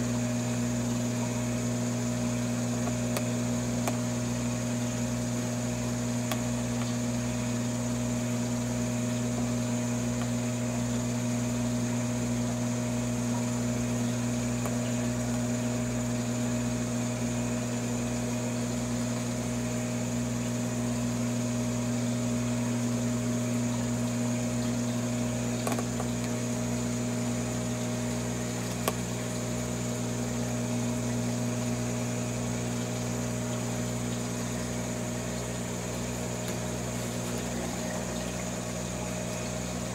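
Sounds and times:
aquarium pump humming: 0.0s - 39.9s.

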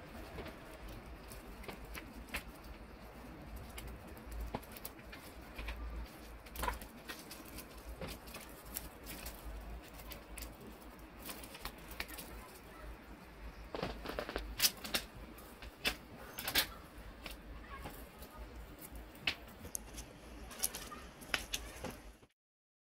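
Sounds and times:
paper rustling and crinkling: 0.0s - 22.3s.

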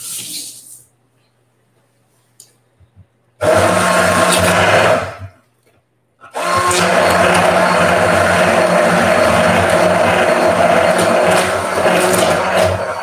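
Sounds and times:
immersion blender running: 3.4s - 5.3s, 6.3s - 13.0s.

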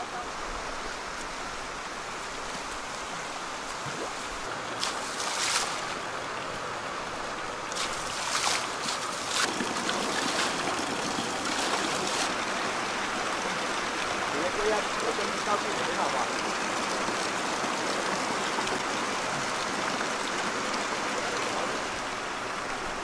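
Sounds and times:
rushing water: 0.0s - 23.0s
people wading through water: 7.4s - 22.2s.

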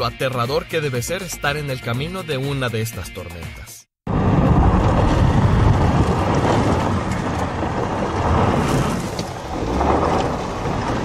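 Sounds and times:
storm wind on microphone: 4.1s - 11.0s.

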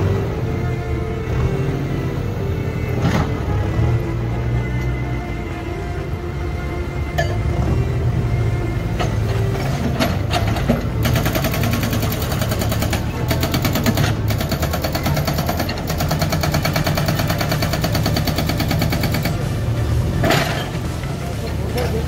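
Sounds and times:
diesel engine running: 0.0s - 22.0s
hydraulic rock breaker hammering: 9.0s - 19.5s.

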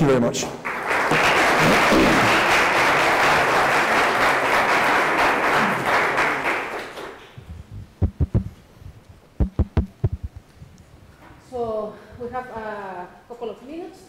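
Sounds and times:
audience applauding: 0.6s - 7.4s
dull low thumps: 7.4s - 10.7s.

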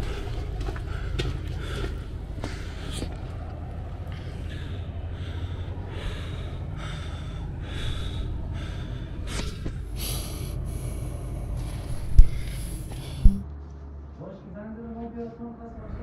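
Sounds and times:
heavy rhythmic breathing: 0.0s - 13.6s
low rumble: 0.0s - 14.0s
sharp knock: 13.2s - 13.5s.

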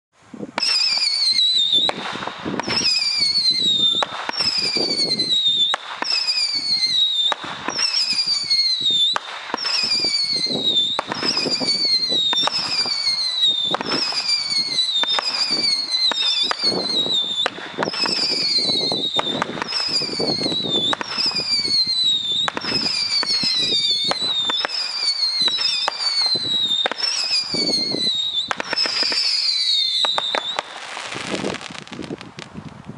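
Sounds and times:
fireworks cracks: 0.5s - 32.9s
fireworks whistle falling in pitch: 0.6s - 31.8s.

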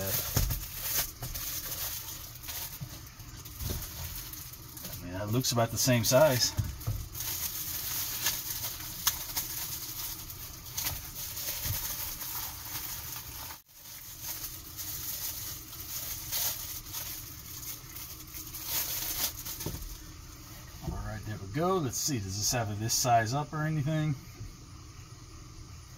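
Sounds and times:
plastic wrapping crinkling: 0.0s - 20.1s.

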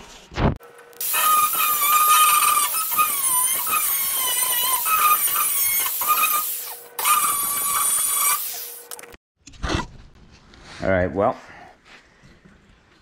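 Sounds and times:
angle grinder grinding metal: 1.0s - 9.0s.

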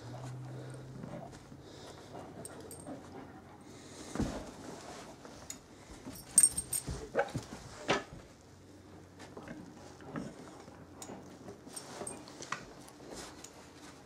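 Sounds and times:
light knocks and shuffling: 0.0s - 8.4s
metallic jingle: 6.2s - 7.0s.

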